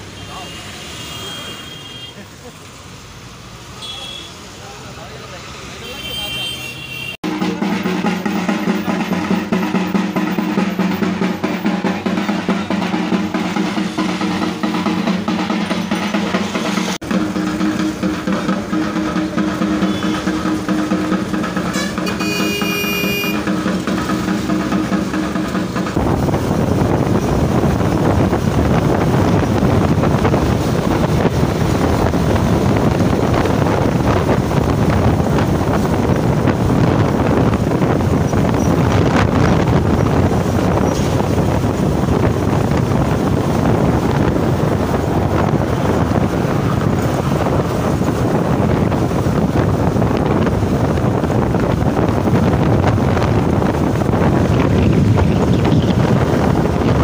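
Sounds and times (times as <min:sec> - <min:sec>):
wind buffeting microphone: 0:25.5 - 0:57.0.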